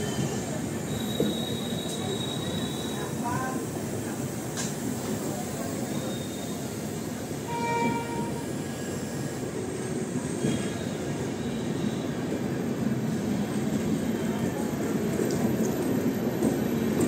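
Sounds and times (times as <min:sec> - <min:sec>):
train wheels rumbling on rail: 0:00.0 - 0:17.0
train horn: 0:07.4 - 0:08.5.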